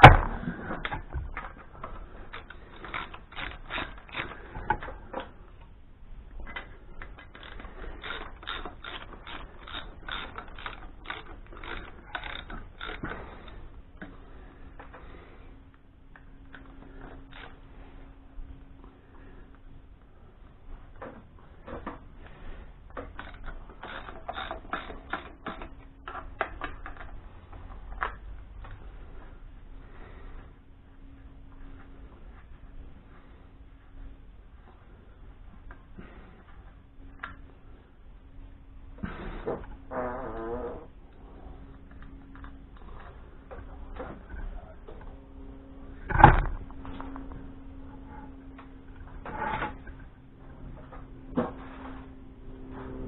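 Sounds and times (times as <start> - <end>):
faint steady hum: 0.0 - 53.0
tools clicking on an engine: 0.8 - 5.7, 6.4 - 15.2, 21.0 - 28.8.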